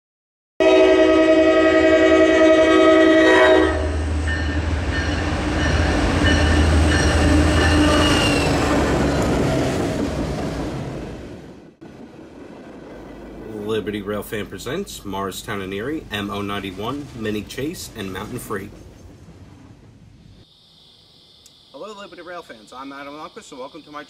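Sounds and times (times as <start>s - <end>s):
locomotive horn chord: 0.6s - 8.3s
locomotive rumbling past: 0.6s - 20.4s.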